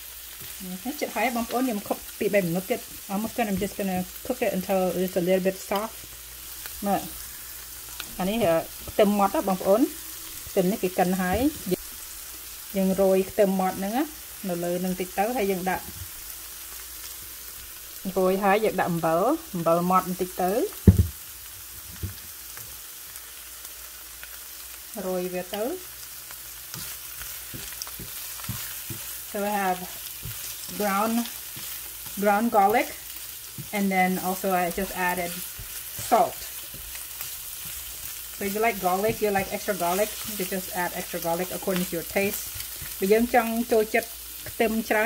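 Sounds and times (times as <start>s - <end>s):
mushrooms sizzling in a pan: 0.0s - 45.0s
spatula stirring: 25.5s - 45.0s
person talking: 29.4s - 29.9s, 33.7s - 35.4s, 38.4s - 42.4s.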